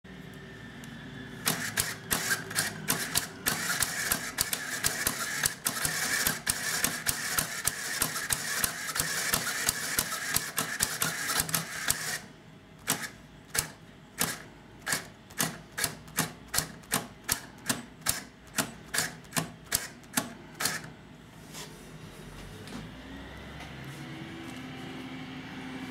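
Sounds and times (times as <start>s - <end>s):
motor and gear whine: 0.1s - 15.5s, 22.8s - 25.9s
mechanism clacking: 1.4s - 20.9s.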